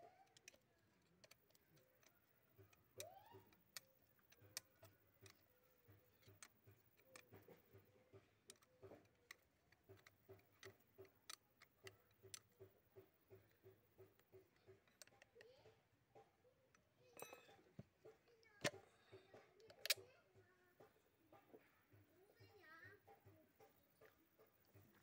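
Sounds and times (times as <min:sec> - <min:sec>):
hand tools tapping metal: 0:00.0 - 0:15.6, 0:16.2 - 0:20.1
soft regular ticking: 0:00.0 - 0:25.0.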